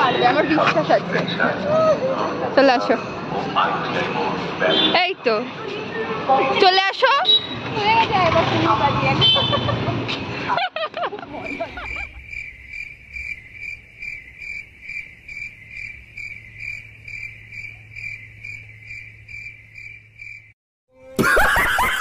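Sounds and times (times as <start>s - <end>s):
cricket chirping: 11.3s - 20.6s.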